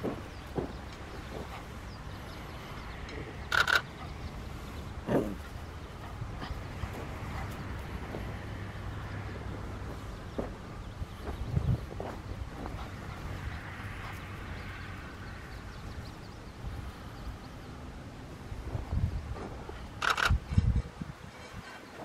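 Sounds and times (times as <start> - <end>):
low outdoor rumble: 0.0 - 22.0
animal calls: 3.1 - 4.2.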